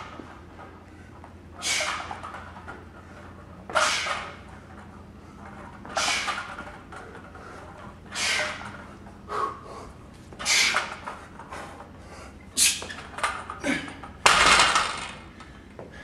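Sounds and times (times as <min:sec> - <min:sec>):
man exhaling forcefully: 0:01.6 - 0:02.0, 0:06.0 - 0:06.4, 0:08.1 - 0:08.6.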